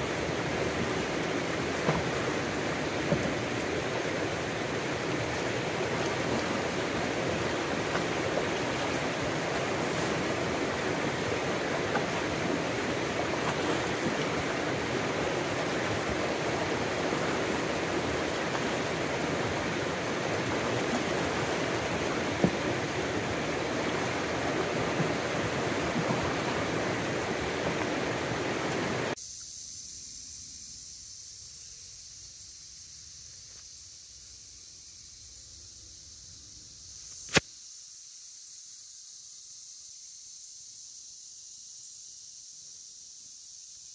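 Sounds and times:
creek rapids rushing over rocks: 0.0s - 29.2s.

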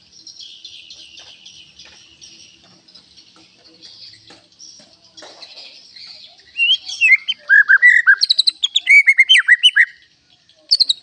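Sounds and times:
bird whistling song: 5.8s - 10.1s, 10.7s - 11.0s.

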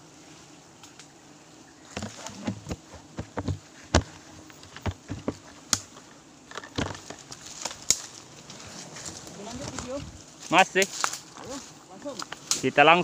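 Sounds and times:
footsteps crunching through dry leaves: 7.0s - 13.0s.

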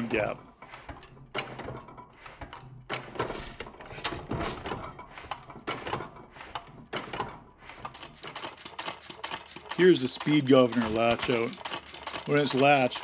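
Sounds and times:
mechanical clicks and knocks: 0.0s - 13.0s
stationary engine running: 7.8s - 13.0s.

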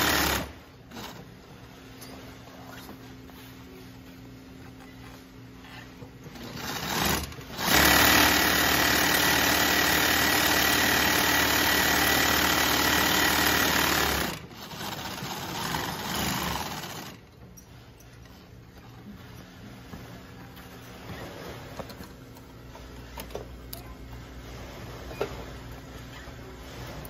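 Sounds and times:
sewing machine running: 0.0s - 1.3s, 6.3s - 17.3s.

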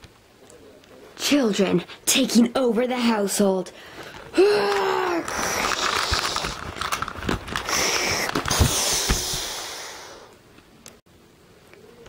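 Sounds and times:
plastic toys rustling and knocking: 3.9s - 9.6s.

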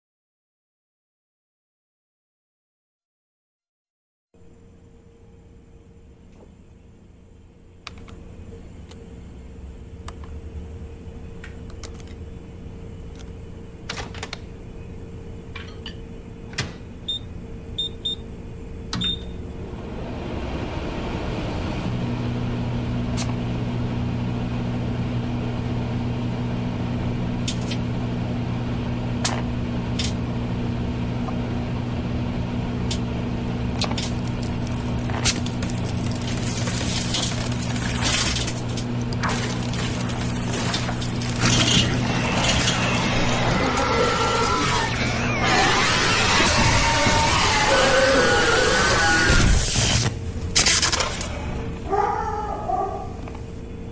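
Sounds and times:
microwave oven humming: 4.4s - 53.9s
crackles and pops: 33.7s - 41.6s.

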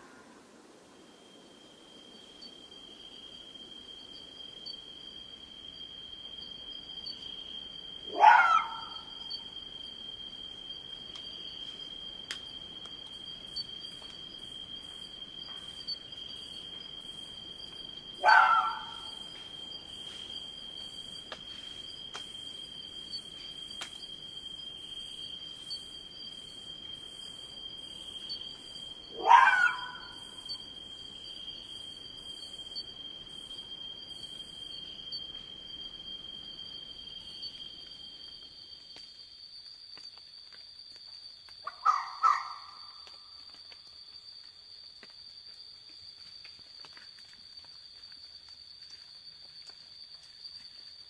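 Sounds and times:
insects buzzing: 0.0s - 51.0s
fox calling: 8.1s - 9.2s, 18.2s - 19.1s, 29.1s - 30.2s, 41.6s - 42.8s.

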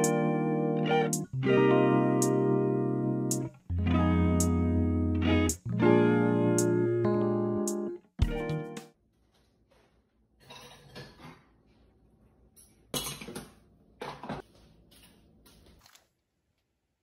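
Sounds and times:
dishes clattering: 10.4s - 11.5s, 12.9s - 14.4s.

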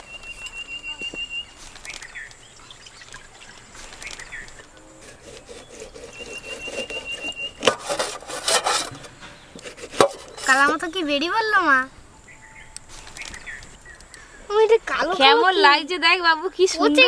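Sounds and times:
faint bird chirps: 0.0s - 7.7s, 8.9s - 15.2s
sharp click: 3.9s - 4.7s
knife cutting fruit: 3.9s - 10.9s
knife scraping plate: 4.9s - 11.0s.

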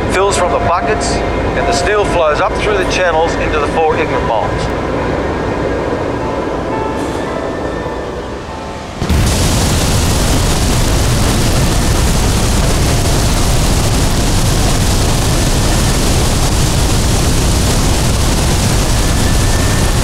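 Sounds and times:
molten metal pouring roar: 9.0s - 20.0s.

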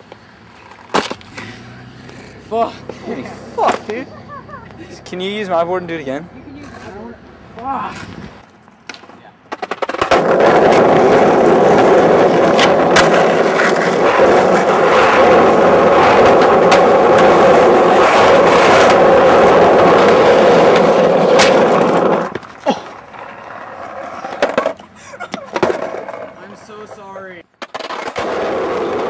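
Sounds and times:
skateboard clacks: 0.0s - 1.5s, 8.8s - 29.0s
skateboard wheels rolling on asphalt: 0.0s - 29.0s.

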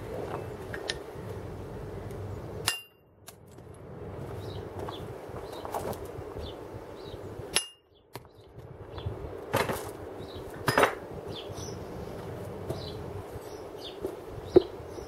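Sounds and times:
steel tools clanking: 2.6s - 3.0s, 7.5s - 7.8s.

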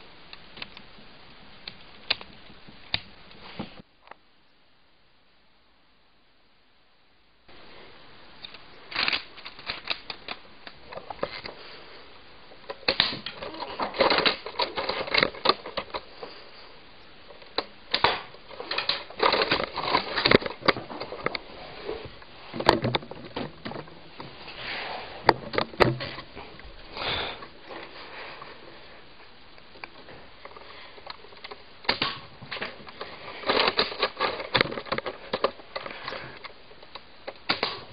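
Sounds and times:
plastic toy rifle clicking and rattling: 17.6s - 21.4s, 31.0s - 35.6s.

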